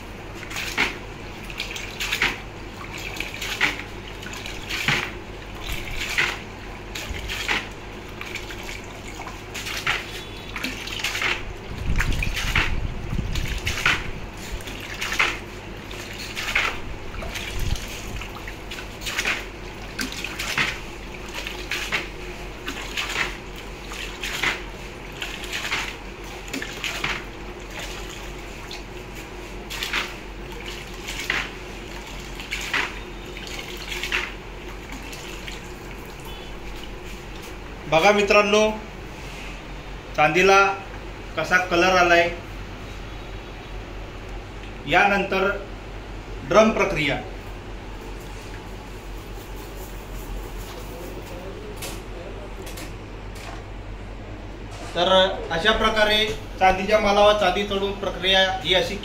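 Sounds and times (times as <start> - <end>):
items dunked into water splashing: 0.0 - 37.8.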